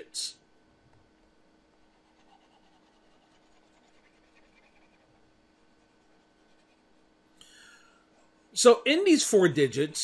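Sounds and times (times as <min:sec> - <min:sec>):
faint steady hum: 0:00.0 - 0:10.0
stylus scratching on pen tablet: 0:01.8 - 0:07.0.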